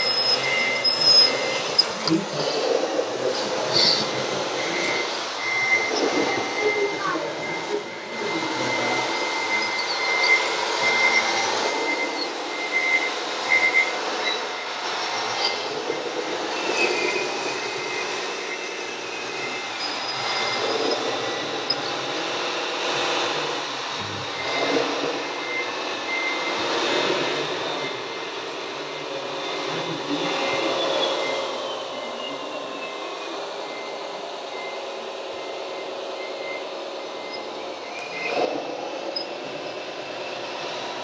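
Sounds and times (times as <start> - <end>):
whining electric motors and gearboxes: 0.0 - 41.0.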